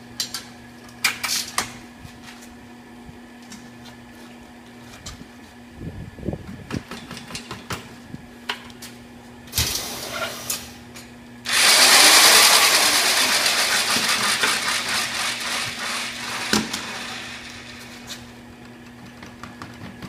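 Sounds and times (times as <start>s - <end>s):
electric mortar mixer running: 11.4s - 18.7s
paddle churning concrete mix: 11.5s - 20.0s.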